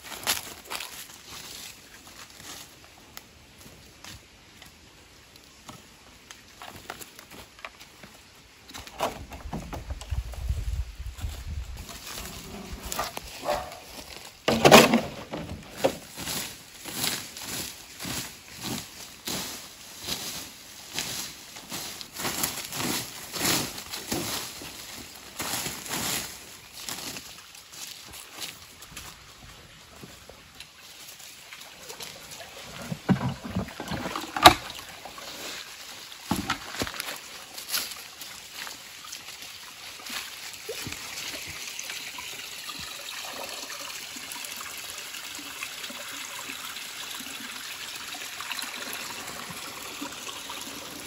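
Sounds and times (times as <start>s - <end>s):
rake scraping dry leaves: 11.8s - 28.5s, 35.2s - 38.1s
water sloshing into bucket: 31.5s - 37.4s.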